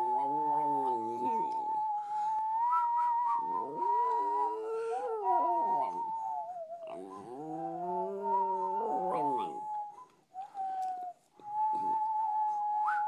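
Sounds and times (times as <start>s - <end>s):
dog howling: 0.0s - 1.8s, 3.4s - 9.9s
person howling: 3.4s - 9.8s.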